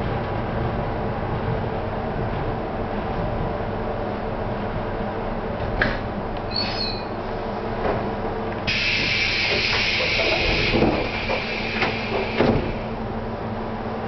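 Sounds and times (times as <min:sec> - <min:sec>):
train equipment humming: 0:00.0 - 0:14.0
compressed air hissing: 0:08.7 - 0:12.9.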